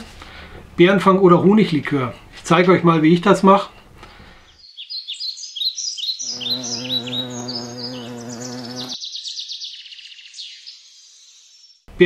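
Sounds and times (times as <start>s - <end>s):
birds chirping: 3.2s - 11.9s
bee buzzing: 6.2s - 9.0s.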